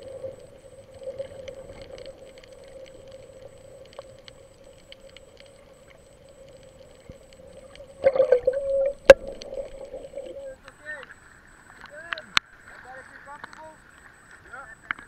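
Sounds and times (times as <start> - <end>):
faint clicks: 0.0 - 15.0
underwater hum: 0.0 - 15.0
bubbling and knocking: 8.0 - 10.4.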